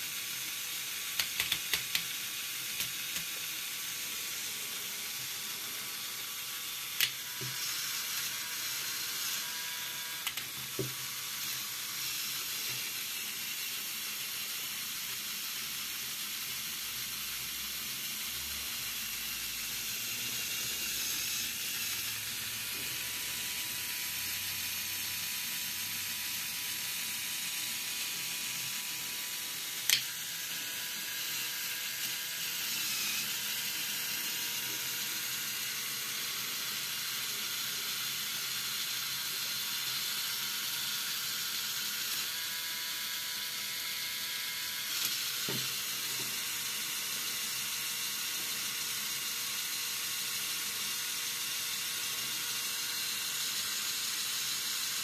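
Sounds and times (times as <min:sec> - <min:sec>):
sharp click: 0:29.9 - 0:30.1.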